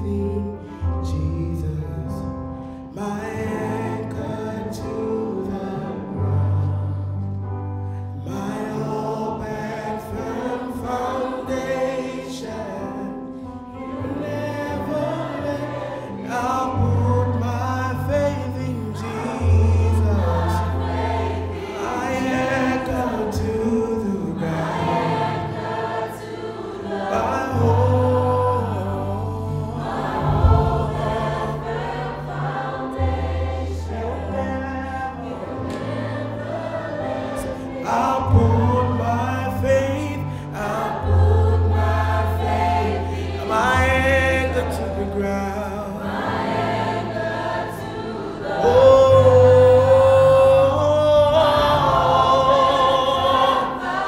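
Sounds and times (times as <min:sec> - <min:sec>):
man singing lead vocals: 0:00.0 - 0:07.2, 0:08.2 - 0:13.3, 0:14.1 - 0:20.8, 0:21.7 - 0:25.4, 0:27.0 - 0:31.6, 0:37.8 - 0:41.9, 0:43.4 - 0:46.2, 0:48.6 - 0:53.9
choir singing: 0:03.0 - 0:54.0
low bass notes: 0:27.6 - 0:32.3.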